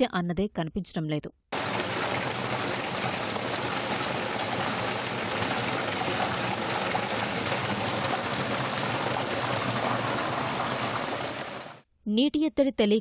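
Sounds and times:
running water rushing: 1.5 - 11.8.

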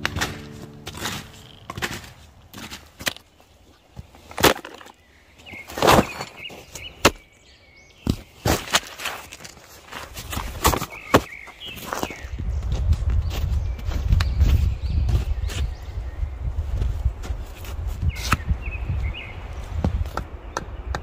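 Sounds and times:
background music: 0.0 - 2.2
snowshoes crunching on snow: 0.0 - 4.3, 8.2 - 15.8
trekking poles clattering: 0.0 - 5.0.

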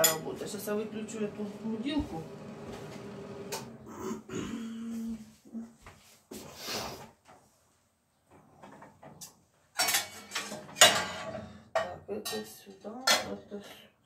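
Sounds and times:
metal pots and pans clattering: 8.6 - 13.4.

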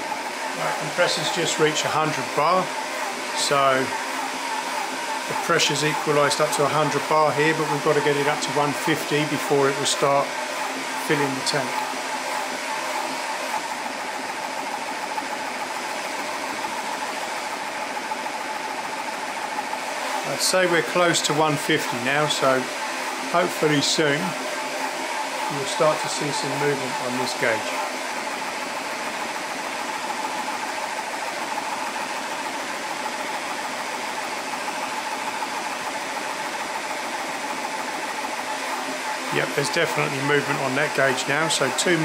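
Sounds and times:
air compressor running: 0.0 - 42.0.

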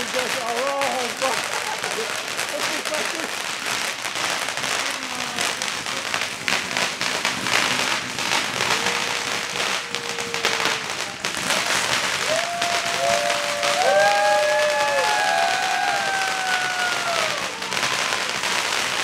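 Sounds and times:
crowd applauding: 0.0 - 5.5, 6.4 - 19.0
voices whooping: 8.3 - 19.0
long held call: 8.4 - 18.6.

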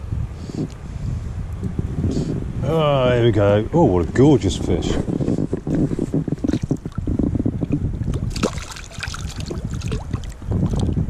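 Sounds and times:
wind rumble on microphone: 0.0 - 11.0
fish splashing at water surface: 8.1 - 10.9.

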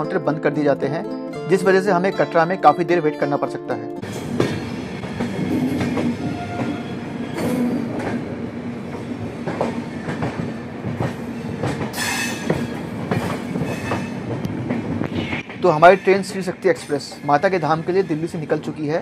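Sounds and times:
train wheels rumbling: 4.0 - 19.0
wheel clacks over rail joints: 9.0 - 14.9
high wheel squeal: 12.0 - 12.5.

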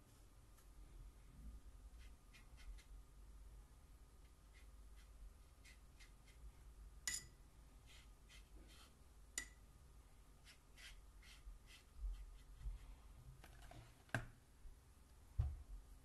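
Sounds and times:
paintbrush dabbing on paper: 1.9 - 2.9, 4.2 - 6.7, 7.8 - 9.6, 10.4 - 12.8.

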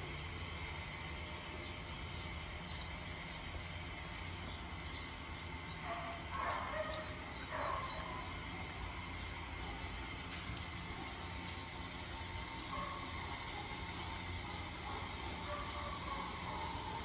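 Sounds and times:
dog barking: 5.8 - 8.1, 12.7 - 13.1, 14.8 - 17.0.

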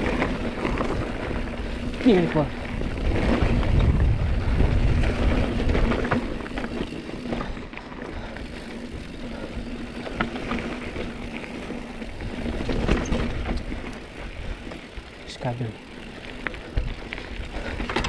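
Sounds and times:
wind rumble on microphone: 0.0 - 7.5
bicycle clicks and rattles: 0.0 - 18.0
bicycle tyres rolling: 0.0 - 18.0.

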